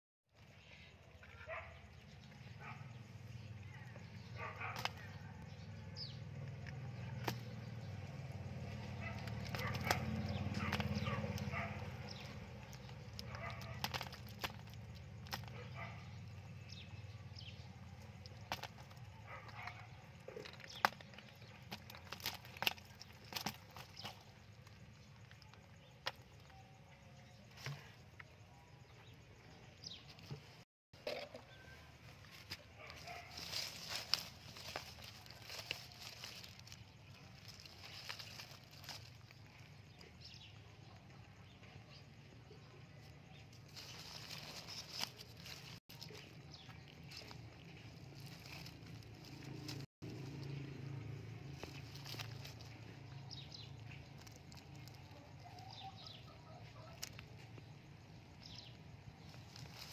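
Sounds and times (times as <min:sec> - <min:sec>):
fish slapping in plastic basket: 0:13.2 - 0:15.5.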